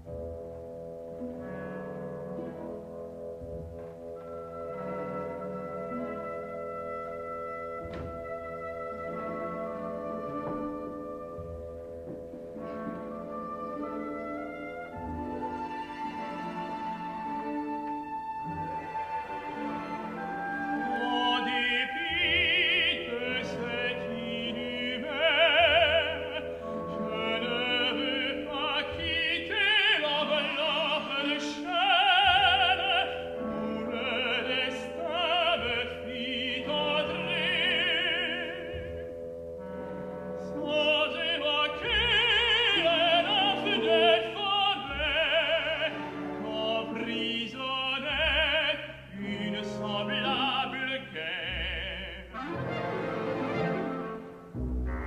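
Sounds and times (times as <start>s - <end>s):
soft orchestral accompaniment: 0.0s - 55.0s
tenor singing opera: 12.5s - 39.2s, 40.3s - 54.3s.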